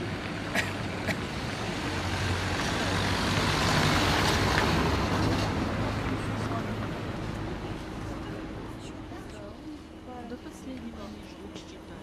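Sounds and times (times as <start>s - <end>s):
street noise: 0.0s - 12.0s
motor vehicle passing: 1.3s - 7.2s.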